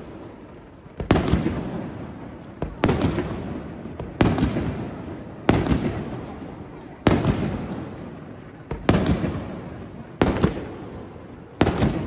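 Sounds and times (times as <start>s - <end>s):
fireworks bursting with echo: 0.0s - 12.0s.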